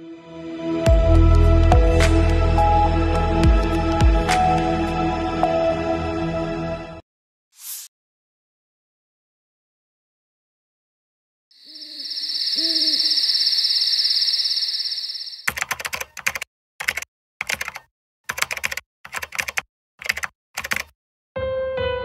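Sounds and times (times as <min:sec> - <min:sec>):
owl hooting: 0:11.6 - 0:15.4
high-pitched chirring: 0:11.6 - 0:15.5
typing on computer keyboard: 0:15.4 - 0:20.9.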